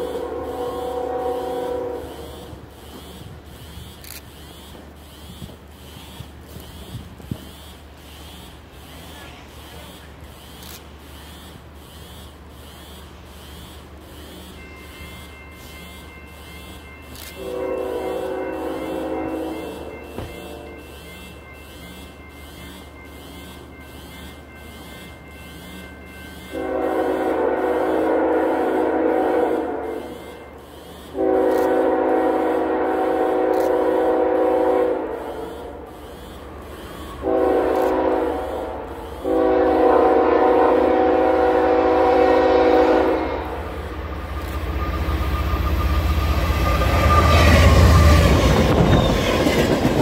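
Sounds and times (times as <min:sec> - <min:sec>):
train horn chord: 0:00.0 - 0:03.2, 0:14.8 - 0:22.1, 0:23.4 - 0:36.0, 0:37.0 - 0:49.3
low train rumble: 0:00.0 - 0:50.0
rhythmic ringing: 0:09.9 - 0:17.2, 0:18.4 - 0:26.6.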